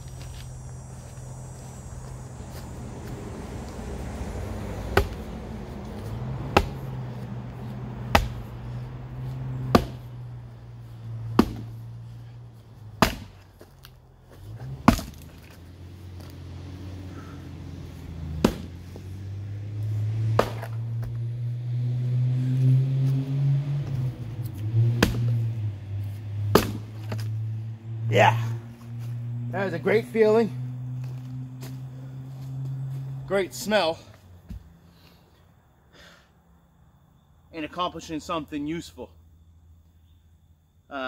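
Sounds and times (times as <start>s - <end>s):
steady low hum: 0.0s - 33.3s
axe chopping firewood: 4.9s - 5.3s, 5.9s - 6.9s, 8.0s - 8.5s, 9.5s - 10.2s, 11.3s - 11.9s, 13.0s - 13.9s, 14.5s - 15.6s, 18.3s - 19.1s, 20.2s - 21.2s, 24.9s - 25.4s, 26.5s - 27.3s.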